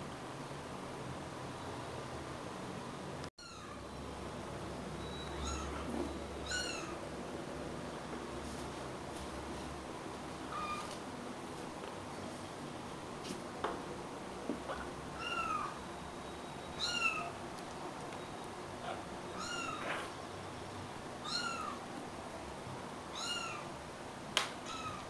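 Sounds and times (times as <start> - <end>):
kitten mewing: 18.9 - 20.1.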